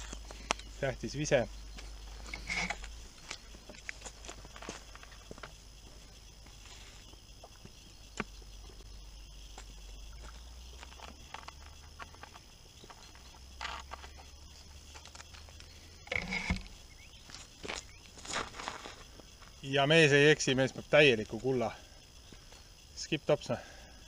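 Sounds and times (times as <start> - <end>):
footsteps on dirt road: 1.5 - 19.6.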